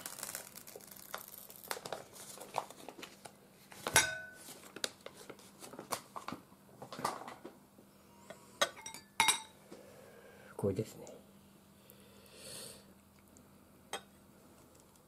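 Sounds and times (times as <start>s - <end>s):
plastic film crinkling: 0.0s - 6.4s.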